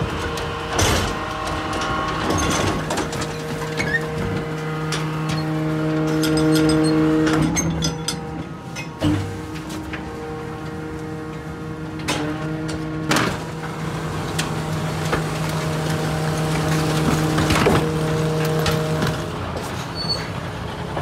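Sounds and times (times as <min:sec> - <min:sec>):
metal clanks and rattling: 0:00.0 - 0:21.0
truck engine and hydraulics humming: 0:00.0 - 0:21.0.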